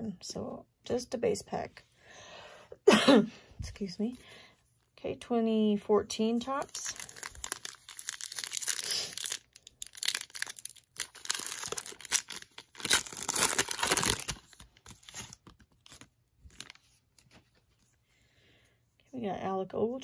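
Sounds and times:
foil wrapper tearing and crinkling: 6.6 - 16.8.

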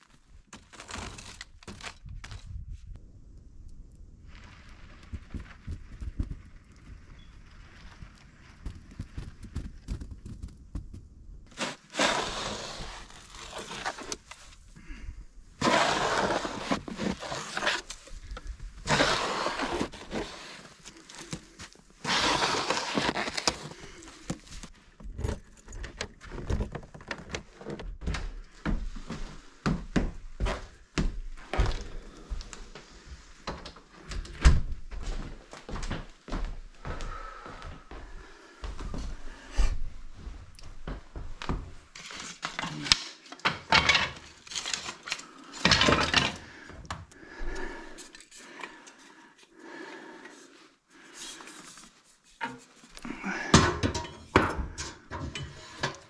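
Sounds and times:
snow shovel scraping wooden deck: 0.6 - 1.9, 11.5 - 14.6, 15.6 - 25.4
footsteps and knocks: 5.0 - 7.1, 8.5 - 11.3, 23.2 - 42.7.

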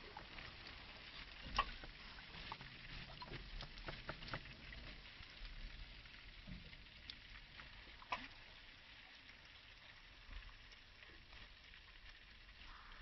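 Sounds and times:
water splashing and lapping: 0.0 - 11.9.

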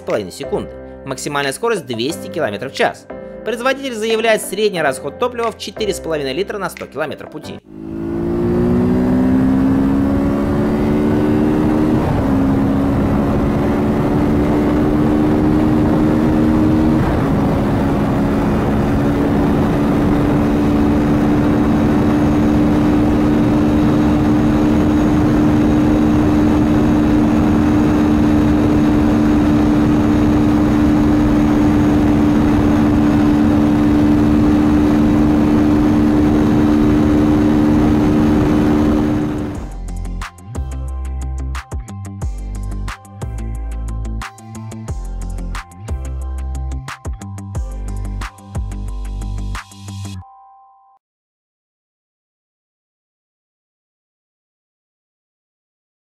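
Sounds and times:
motorcycle engine accelerating hard: 7.6 - 39.8
wind rush: 7.8 - 39.7.

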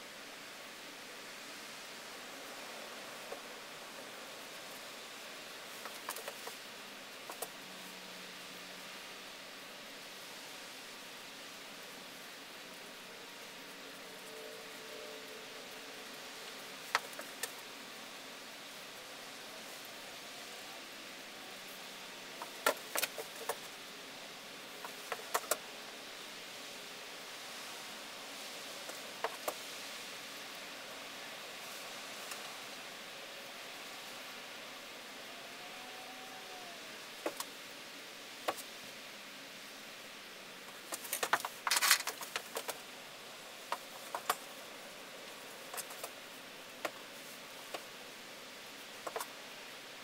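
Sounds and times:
steady hiss: 0.0 - 50.0
rustling: 40.6 - 48.0.

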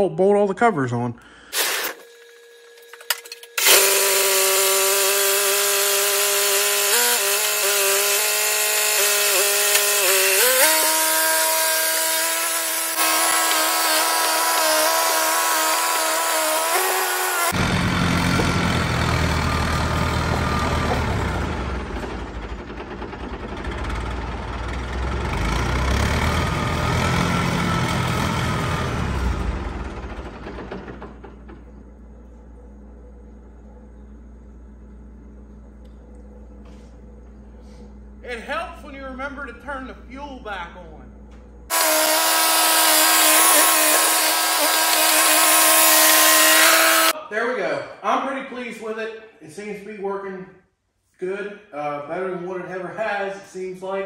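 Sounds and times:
bulldozer engine revving: 3.6 - 33.0, 41.6 - 47.2
bulldozer tracks moving: 4.6 - 33.0.

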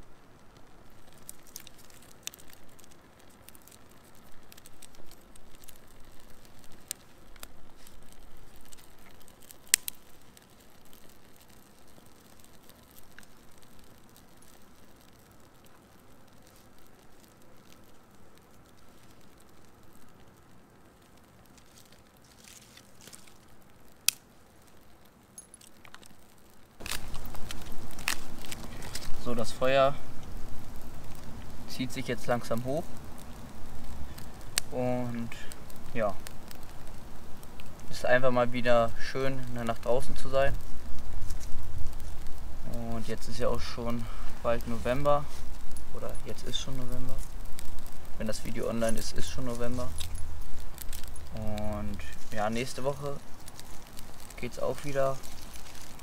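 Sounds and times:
fire crackling and snapping: 0.0 - 56.0
rustling: 0.0 - 56.0
sharp wood snap: 9.1 - 10.0.

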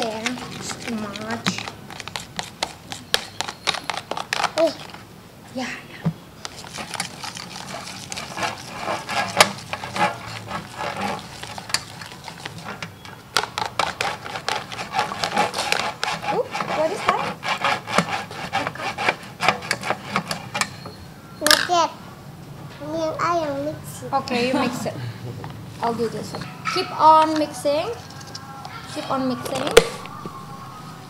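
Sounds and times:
utensils scraping mixing bowls: 0.0 - 5.0, 6.4 - 21.1.

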